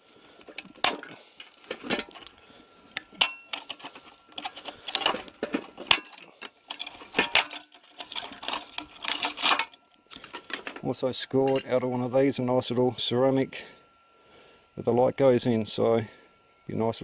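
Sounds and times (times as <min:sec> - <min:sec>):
plastic and metal parts rattling: 0:00.5 - 0:02.3, 0:03.2 - 0:10.8.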